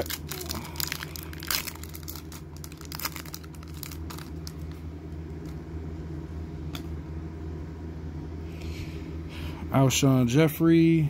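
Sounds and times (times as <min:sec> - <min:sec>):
foil wrapper tearing and crinkling: 0:00.0 - 0:04.8
steady low hum: 0:00.0 - 0:11.0.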